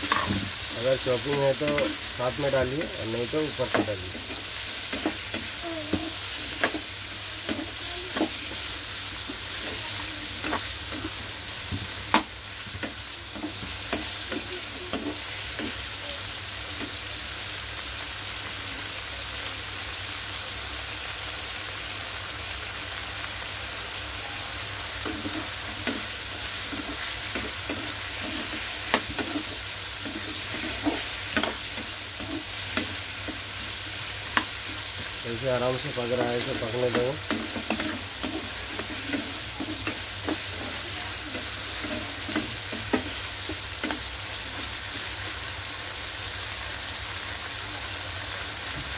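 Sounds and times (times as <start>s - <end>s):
food sizzling in a hot pan: 0.0s - 48.9s.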